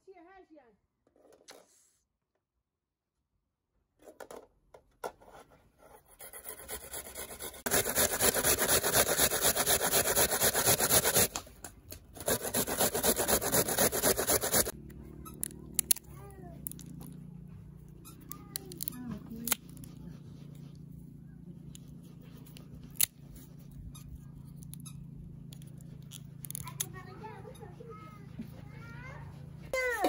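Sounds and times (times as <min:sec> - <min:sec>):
food grating on metal grater: 0:06.0 - 0:11.4, 0:12.2 - 0:14.8.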